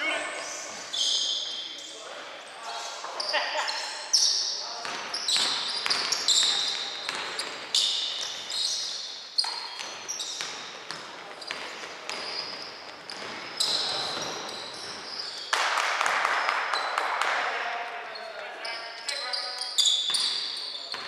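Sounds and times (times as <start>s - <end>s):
sneakers squeaking: 0.0s - 15.6s, 16.3s - 21.0s
basketball bouncing: 4.8s - 8.4s, 9.4s - 14.9s.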